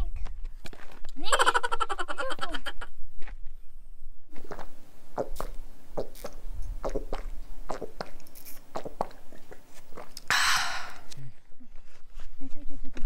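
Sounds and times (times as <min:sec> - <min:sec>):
footsteps crunching on dirt trail: 0:00.2 - 0:01.2, 0:04.3 - 0:10.2.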